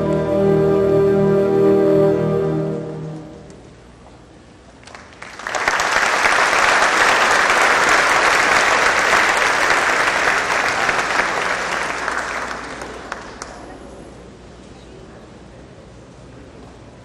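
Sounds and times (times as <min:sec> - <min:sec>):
audience applause: 0:04.8 - 0:13.7.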